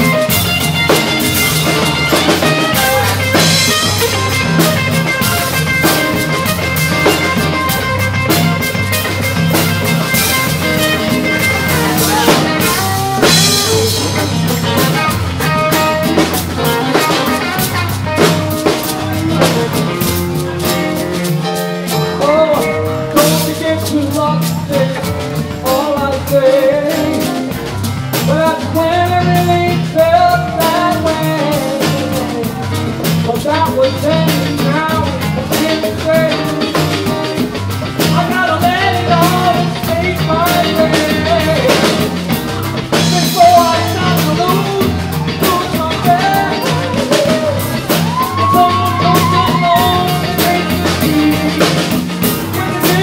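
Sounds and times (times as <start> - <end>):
live band playing: 0.0 - 53.0.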